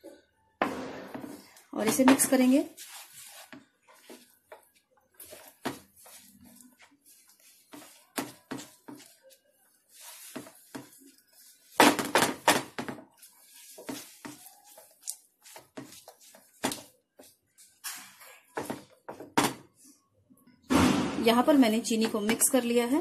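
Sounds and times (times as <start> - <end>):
spatula scraping a pan: 1.4 - 11.8, 13.1 - 18.6.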